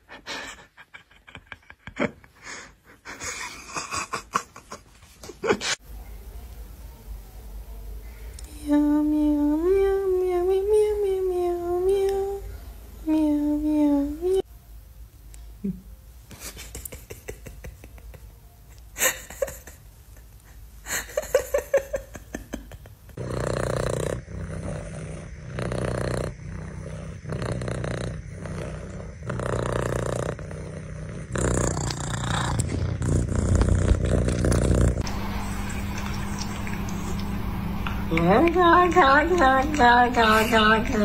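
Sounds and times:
cat purring: 23.1s - 35.1s.

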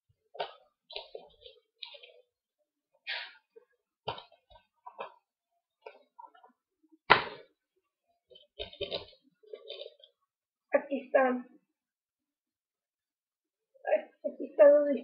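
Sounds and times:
small plastic rattles: 0.4s - 2.2s.

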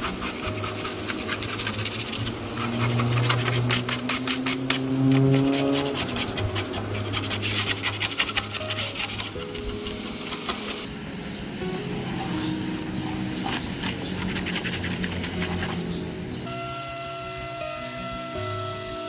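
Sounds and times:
sandpaper rubbing over paint: 0.0s - 10.9s, 13.4s - 15.9s.

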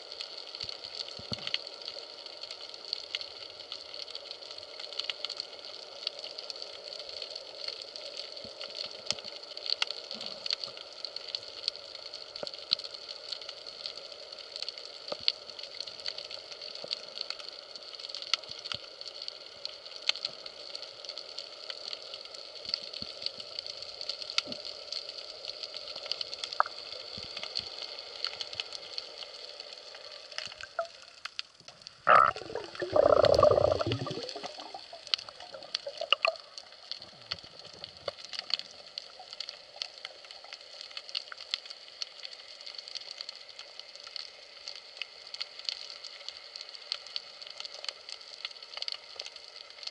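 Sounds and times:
underwater hiss with crackles: 0.0s - 49.9s
rushing bubbling burst: 32.1s - 36.5s.

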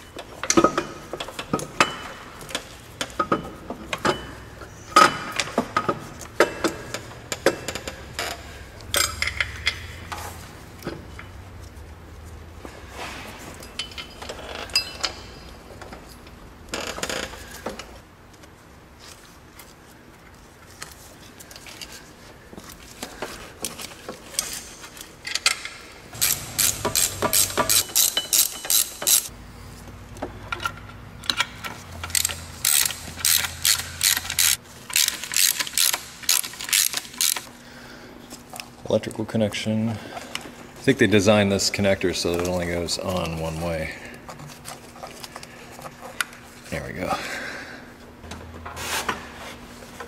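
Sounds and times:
tools clinking and knocking: 0.1s - 10.2s, 13.5s - 16.3s, 23.7s - 29.3s
socket ratchet clicking: 26.2s - 29.3s, 32.0s - 37.5s.

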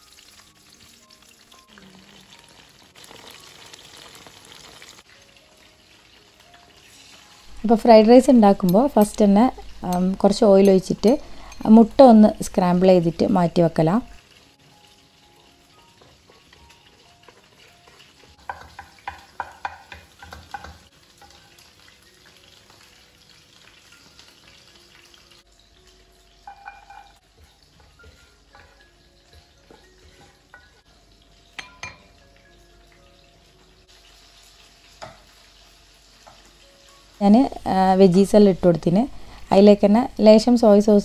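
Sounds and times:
egg sizzling in a pan: 0.0s - 40.6s
spatula scraping a pan: 26.5s - 30.8s.

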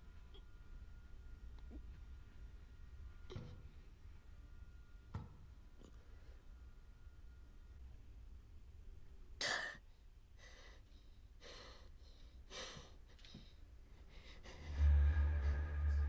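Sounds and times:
low steady hum: 0.0s - 16.0s
person panting: 10.4s - 15.2s.

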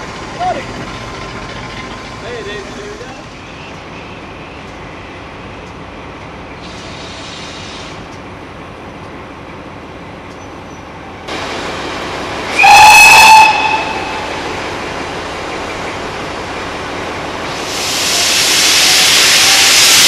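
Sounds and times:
steam hissing: 6.6s - 8.1s, 12.4s - 16.3s, 17.3s - 20.0s
steam locomotive whistle: 12.5s - 14.4s.

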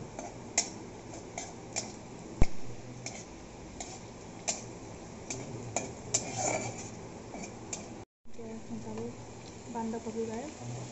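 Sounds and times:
metal spatula scraping a wok: 0.2s - 1.9s, 3.0s - 4.7s, 5.3s - 7.9s.

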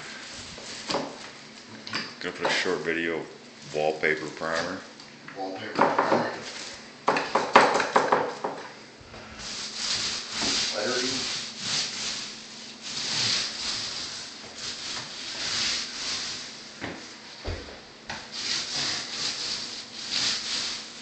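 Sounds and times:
brush rubbing swish on wall: 9.4s - 17.5s, 18.1s - 21.0s.

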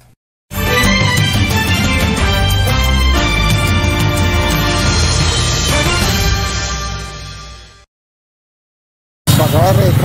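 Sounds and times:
news jingle with heavy bass: 0.5s - 7.9s.

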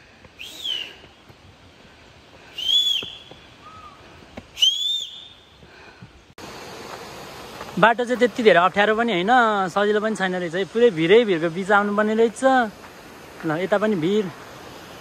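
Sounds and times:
whistled notes: 0.4s - 1.0s, 2.5s - 5.5s.

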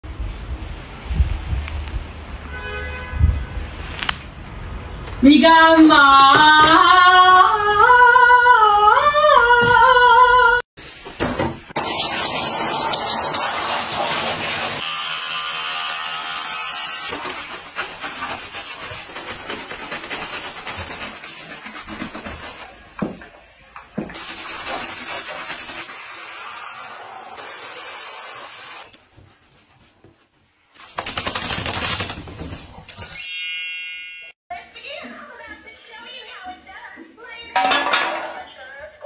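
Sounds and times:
shower head spraying water: 11.8s - 14.8s, 24.2s - 28.9s.

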